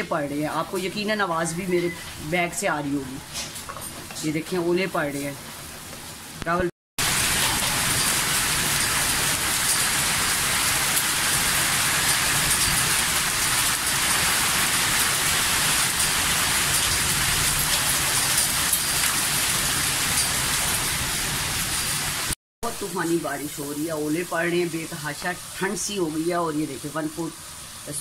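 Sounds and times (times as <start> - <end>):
heavy rain hissing: 7.0 - 22.4.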